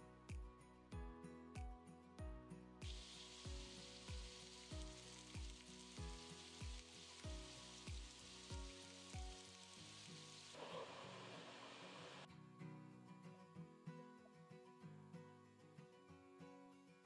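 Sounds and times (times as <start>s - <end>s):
background music with drum beat: 0.3s - 9.4s
food sizzling in oil: 2.8s - 12.3s.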